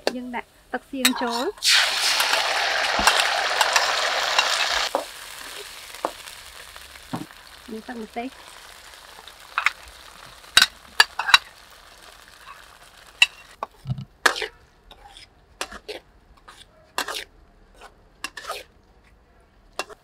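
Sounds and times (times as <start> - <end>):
oil sizzling: 1.0 - 13.7
metal spatula scraping a wok: 2.9 - 5.6, 10.5 - 11.6, 12.2 - 13.6, 14.2 - 18.7, 19.8 - 20.0.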